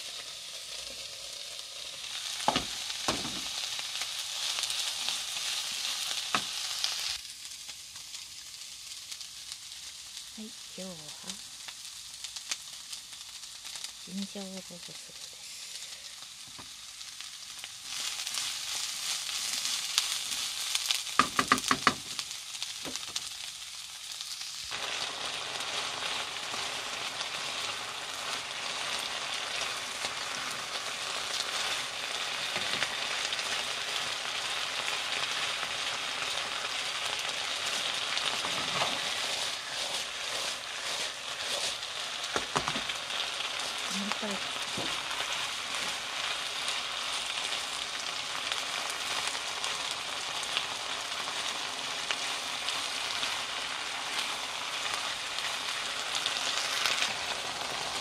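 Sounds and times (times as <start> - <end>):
meat and pepper sizzling in pan: 0.0 - 58.0
wooden spatula stirring: 37.6 - 42.9.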